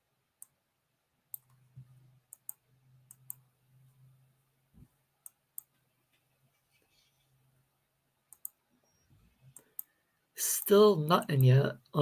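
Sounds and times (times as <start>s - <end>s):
faint computer clicks: 2.3s - 3.4s, 8.3s - 10.0s.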